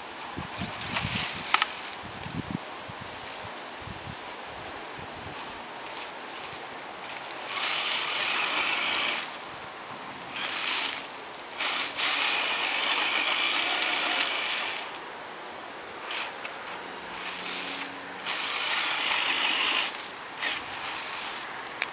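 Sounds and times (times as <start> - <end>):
toy car motor whirring: 7.1 - 9.4, 10.3 - 15.0, 16.0 - 16.5, 17.1 - 21.5.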